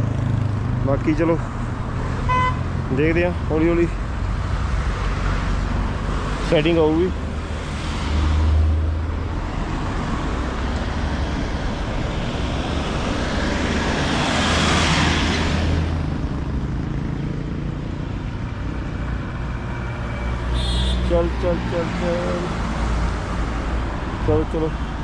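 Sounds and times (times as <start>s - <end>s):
road traffic rumble: 0.0s - 25.0s
motor vehicle passing: 7.1s - 17.9s.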